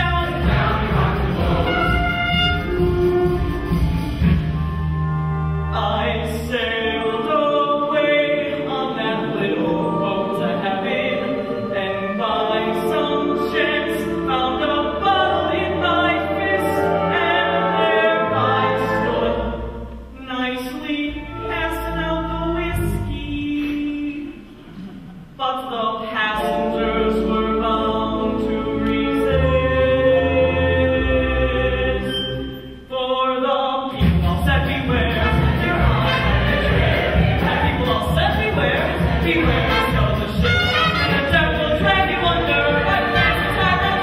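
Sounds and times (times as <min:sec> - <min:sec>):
chorus singing: 0:00.0 - 0:04.3, 0:05.8 - 0:25.2, 0:26.0 - 0:32.7, 0:33.9 - 0:44.0
orchestra accompaniment: 0:00.0 - 0:23.8, 0:26.2 - 0:32.8, 0:34.0 - 0:44.0
man singing: 0:20.2 - 0:24.4, 0:32.9 - 0:36.7, 0:37.4 - 0:44.0.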